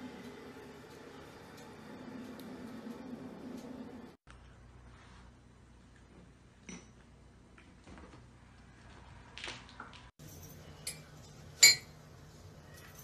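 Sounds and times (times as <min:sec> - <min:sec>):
sharp clink: 0:10.2 - 0:11.9.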